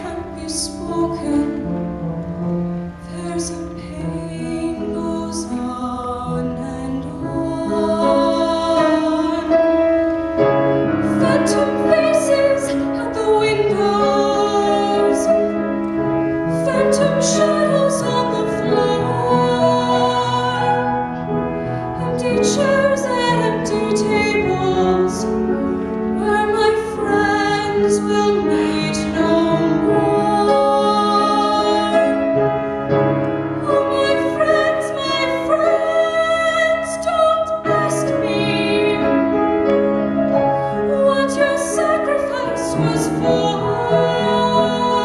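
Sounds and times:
piano accompaniment: 0.0s - 45.0s
woman singing ballad: 33.6s - 39.2s, 40.9s - 45.0s.

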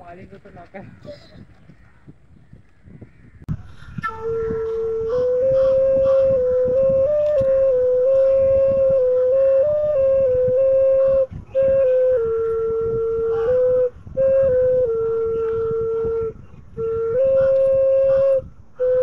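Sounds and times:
bamboo flute melody: 3.5s - 19.0s.

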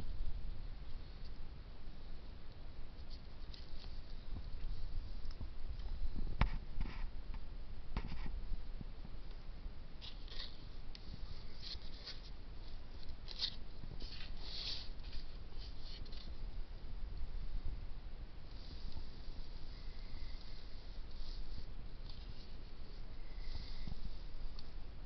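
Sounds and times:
hands rustling plastic and soil: 10.0s - 17.4s.

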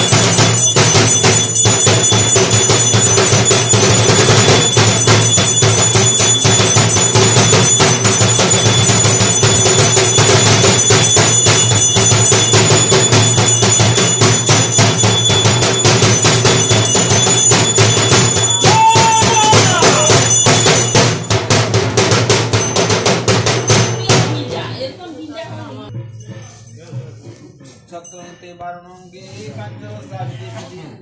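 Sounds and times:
held tone: 0.0s - 21.8s
metallic ringing: 0.0s - 24.8s
drums beaten in fast rhythm: 0.0s - 28.2s.

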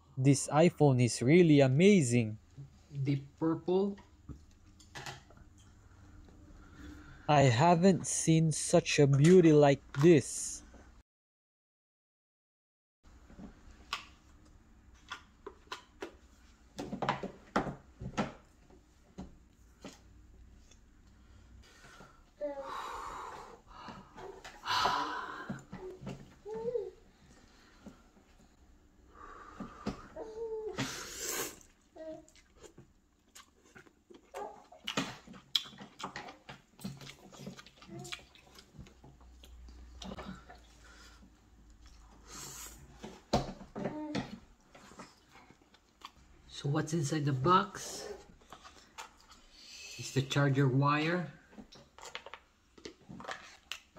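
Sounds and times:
chewing: 31.6s - 42.2s, 44.7s - 46.3s, 48.4s - 49.6s.

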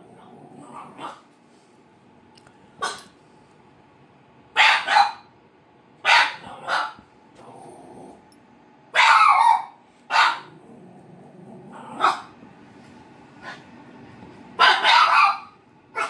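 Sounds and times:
dog barking: 0.8s - 1.3s, 2.8s - 3.1s, 4.6s - 5.3s, 6.0s - 7.0s, 8.9s - 10.6s, 11.9s - 12.4s, 14.6s - 16.0s.

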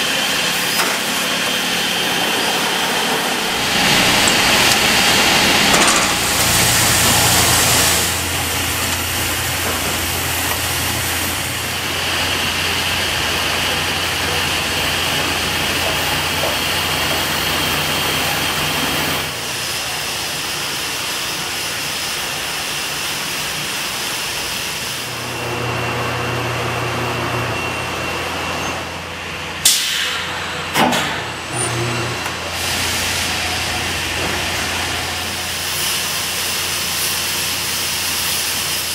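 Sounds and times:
machinery humming: 0.0s - 38.9s.

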